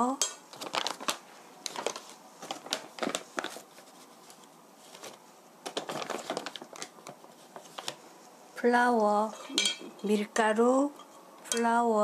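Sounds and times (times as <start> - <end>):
plastic bags crinkling: 0.5 - 8.0.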